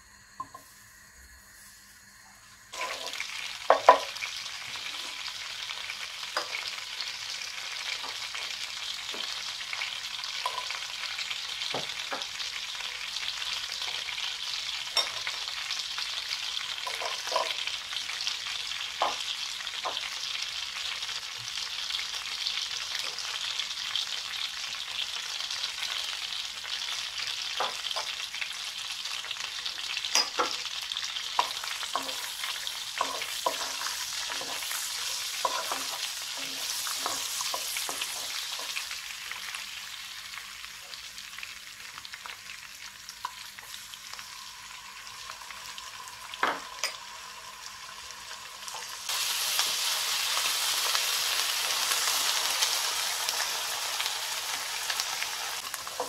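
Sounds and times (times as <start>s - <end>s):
butter sizzling in a pan: 1.8s - 56.0s.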